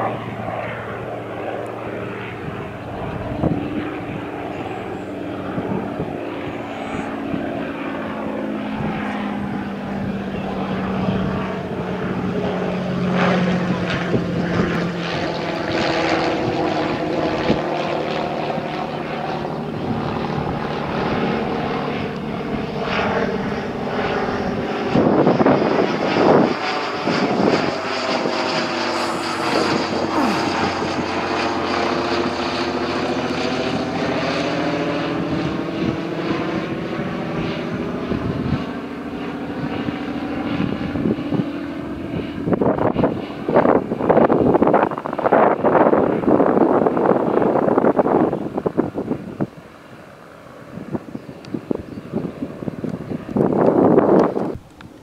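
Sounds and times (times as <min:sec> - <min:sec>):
biplane engine flying past: 0:00.0 - 0:55.0
loud bursts of noise: 0:28.8 - 0:31.1.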